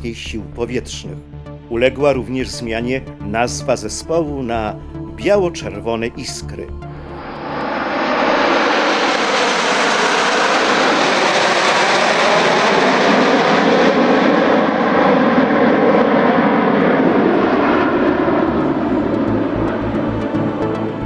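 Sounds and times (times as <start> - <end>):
jet planes passing overhead: 5.6 - 21.0.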